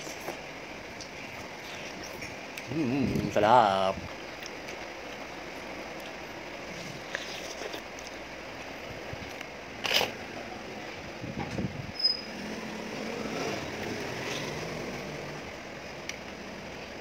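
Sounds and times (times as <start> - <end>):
steady background hum: 0.0 - 17.0
chewing: 6.0 - 8.2
slurping soup: 6.7 - 7.8.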